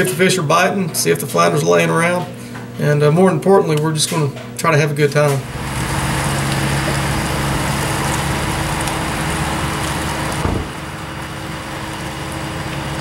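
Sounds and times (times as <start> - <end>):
truck engine humming past: 5.4 - 13.0
short knock: 10.4 - 10.8.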